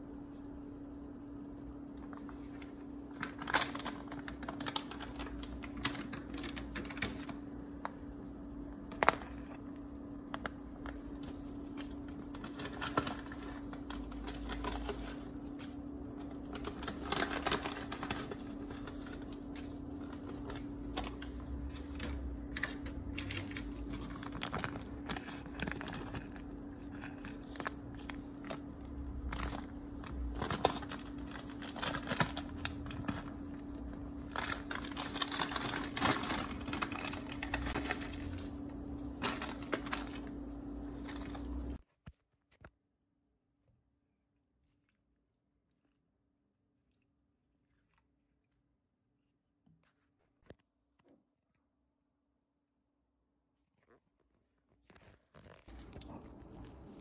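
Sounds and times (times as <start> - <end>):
steady hum: 0.0 - 41.8, 55.7 - 57.0.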